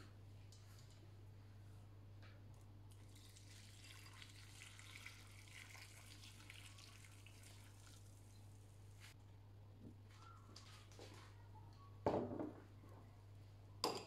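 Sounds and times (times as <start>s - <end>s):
water pouring into bowl: 2.9s - 8.5s.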